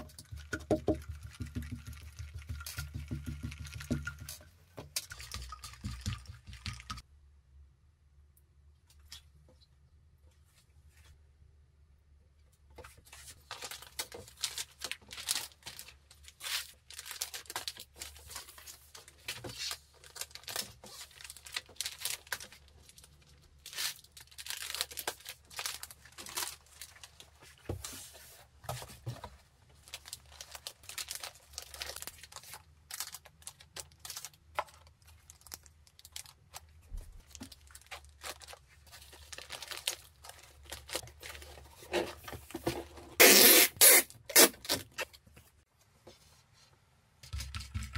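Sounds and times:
plastic bags and bubble wrap crinkling: 0:12.8 - 0:45.6.

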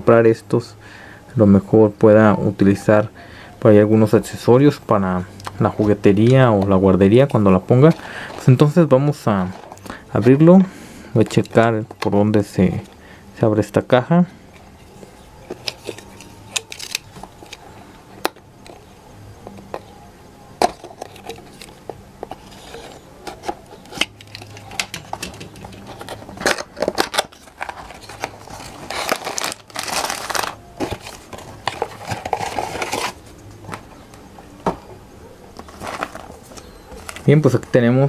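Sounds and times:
plastic bags rustling: 0:07.1 - 0:13.1, 0:20.8 - 0:34.0, 0:35.6 - 0:37.8.

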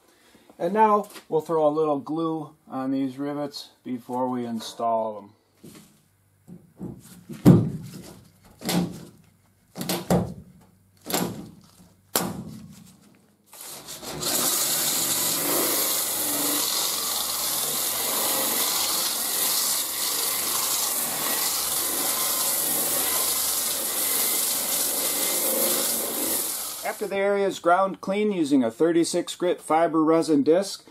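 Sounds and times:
sander grinding steel: 0:13.6 - 0:27.3.

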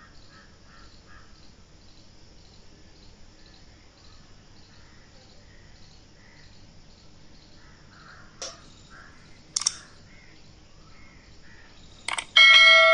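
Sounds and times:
faint outdoor background noise: 0:00.0 - 0:12.9.

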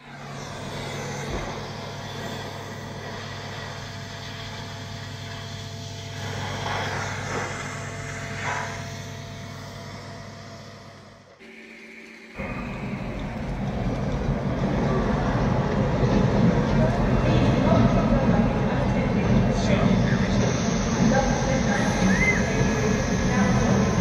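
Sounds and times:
diesel locomotive engine idling: 0:12.4 - 0:24.0.

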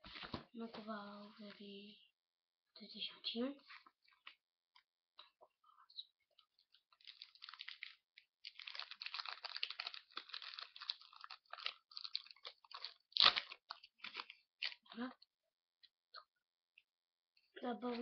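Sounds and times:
wrapper crinkling and tearing: 0:06.9 - 0:15.0.

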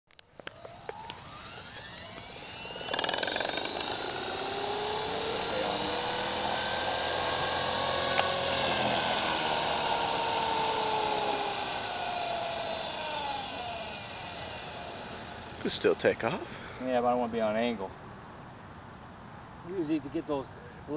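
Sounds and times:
model helicopter motor whine: 0:00.4 - 0:16.3.

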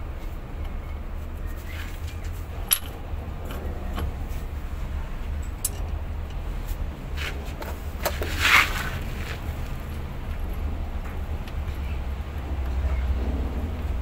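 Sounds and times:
light metal clinks: 0:05.4 - 0:06.0.

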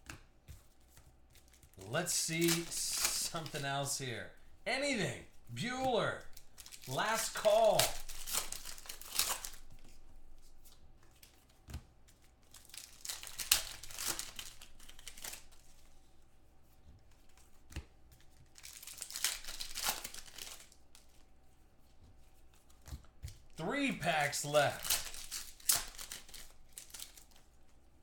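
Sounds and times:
card pack wrappers tearing: 0:01.8 - 0:04.2, 0:06.3 - 0:09.6, 0:12.5 - 0:15.5, 0:18.6 - 0:20.7, 0:23.7 - 0:27.4.

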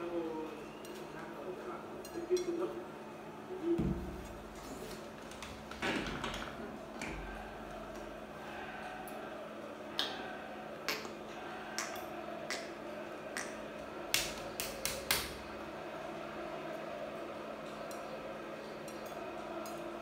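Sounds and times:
steady low hum: 0:06.5 - 0:20.0.

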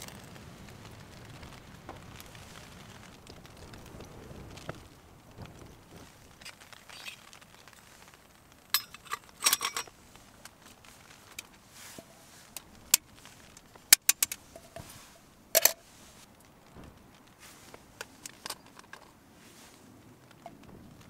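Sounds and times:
metal cookware clinking: 0:08.8 - 0:09.9.

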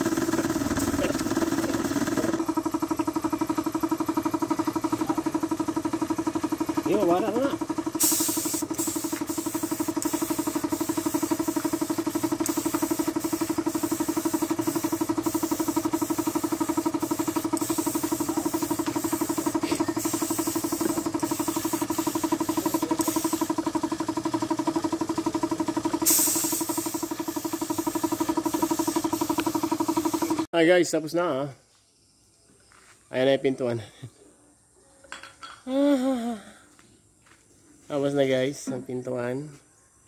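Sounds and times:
air compressor running: 0:00.0 - 0:30.5
paint spray gun hissing: 0:00.0 - 0:30.5.

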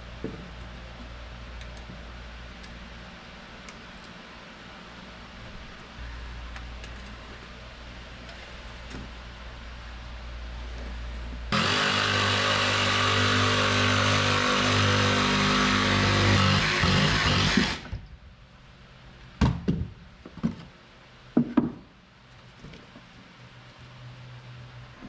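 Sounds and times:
jigsaw cutting wood panel: 0:11.5 - 0:17.9.

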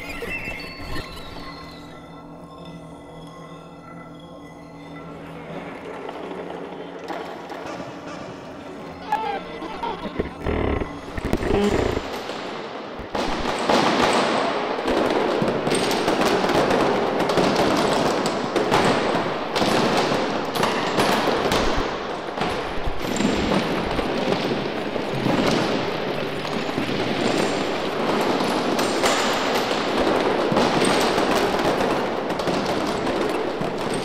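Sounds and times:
dense crackling clicks and pops: 0:09.0 - 0:14.2.

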